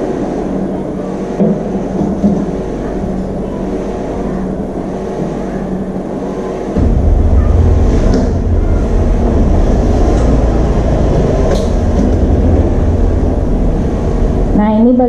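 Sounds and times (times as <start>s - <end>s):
low rumble: 6.8s - 15.0s.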